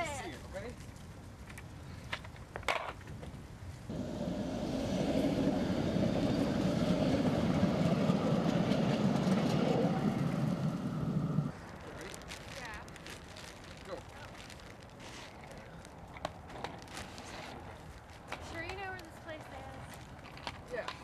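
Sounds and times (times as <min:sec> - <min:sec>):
train wheels rumbling on rails: 0:03.9 - 0:11.6.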